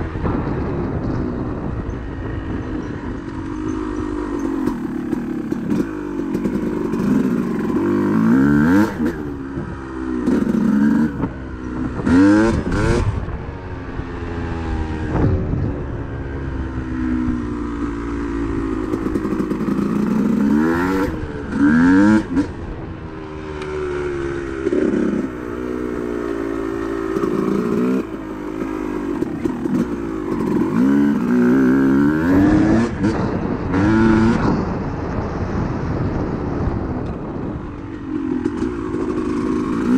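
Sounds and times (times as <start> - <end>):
dirt bike engine revving: 3.4 - 13.4, 17.8 - 22.6, 23.8 - 34.8, 38.2 - 39.9.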